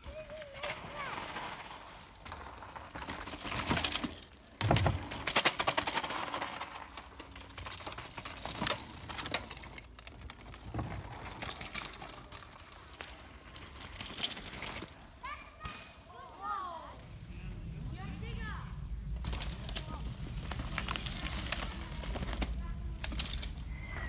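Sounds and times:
tyre noise on dirt: 0.0 - 24.0
bicycle thump: 3.6 - 5.7.

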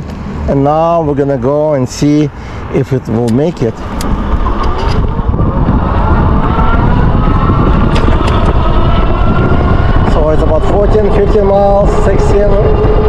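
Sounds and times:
wind rushing over microphone: 0.0 - 13.0
electric motor whine: 3.8 - 13.0.

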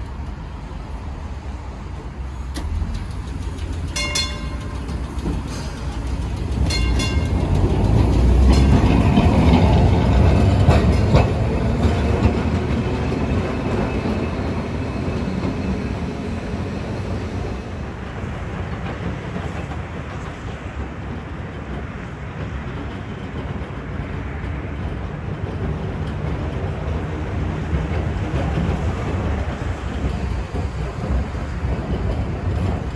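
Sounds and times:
tram approaching with hiss: 0.0 - 32.9
tram rumbling: 0.0 - 32.9
wheels clicking over rail joints: 2.4 - 14.7.

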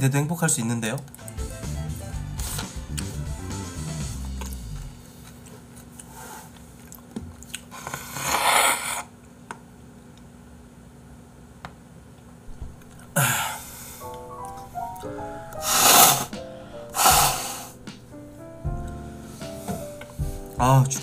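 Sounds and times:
man blowing nose: 7.7 - 9.1, 13.1 - 14.1, 15.5 - 17.8.

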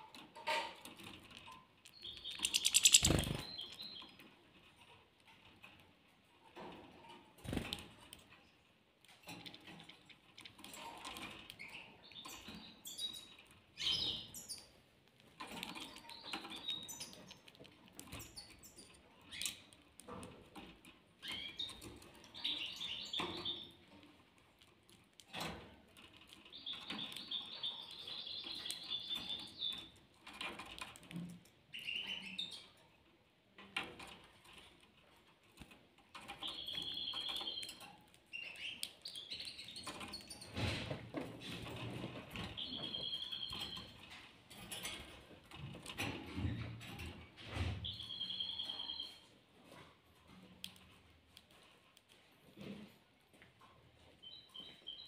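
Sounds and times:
finches twittering: 2.2 - 3.6
wings fluttering: 2.4 - 3.5.

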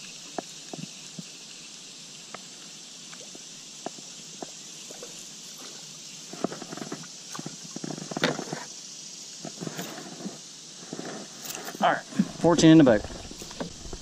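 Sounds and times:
steady hiss: 0.0 - 14.0.

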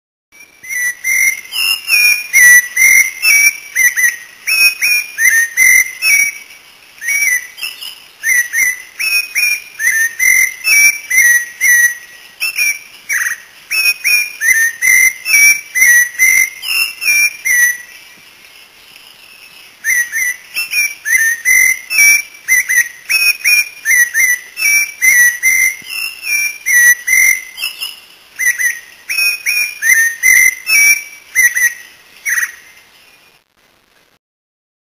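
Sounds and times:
thrush singing whistled notes: 0.3 - 33.5.

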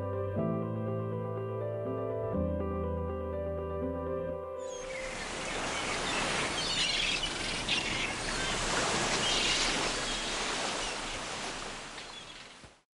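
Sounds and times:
birds chirping: 4.7 - 12.8
small waves washing onto sand: 4.8 - 12.8.

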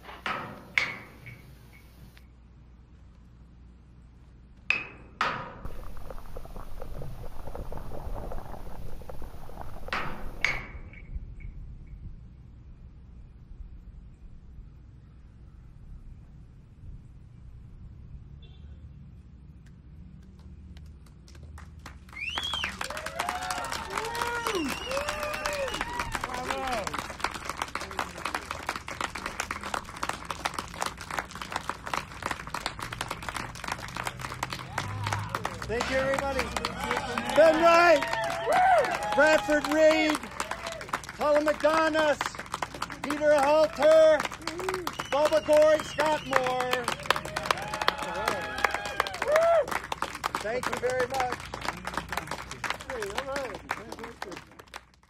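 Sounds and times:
crackling rattling metal: 5.3 - 11.1
audience applauding: 21.3 - 55.0.

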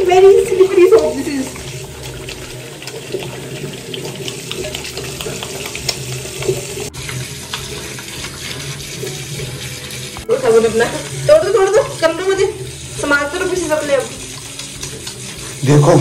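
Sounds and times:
hands lathering soap: 0.0 - 16.0
tap running into washbasin: 0.0 - 16.0.

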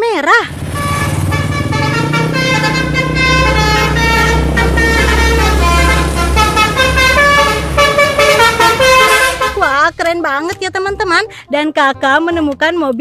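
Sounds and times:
bus engine rumble: 0.0 - 11.5
multi-tone bus horn tune: 0.5 - 10.0.

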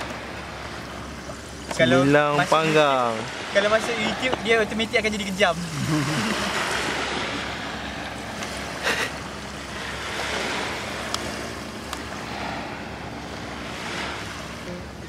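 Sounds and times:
surf rushing: 0.0 - 15.0
wind: 0.0 - 15.0.

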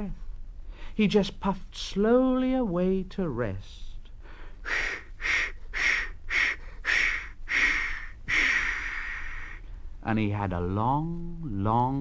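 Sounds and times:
voice imitating steam engine chuffs: 4.6 - 9.6
voice imitating steam hiss: 4.6 - 9.6.

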